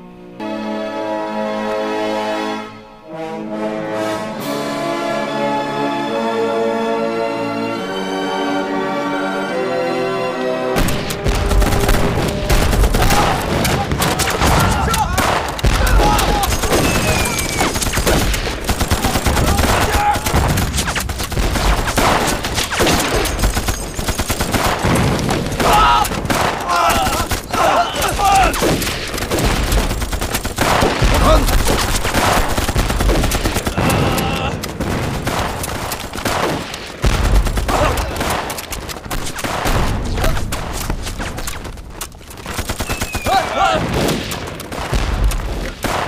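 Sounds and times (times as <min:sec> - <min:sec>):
heavy explosion: 0:10.8 - 0:23.5, 0:30.6 - 0:38.5
continuous machine gun and rifle fire: 0:10.8 - 0:46.0.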